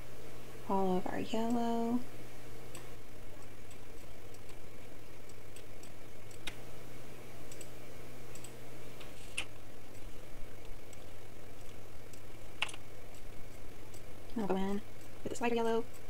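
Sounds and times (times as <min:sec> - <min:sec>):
low steady hum: 0:00.0 - 0:16.0
computer mouse clicking: 0:02.7 - 0:04.6, 0:05.2 - 0:06.6, 0:07.5 - 0:16.0.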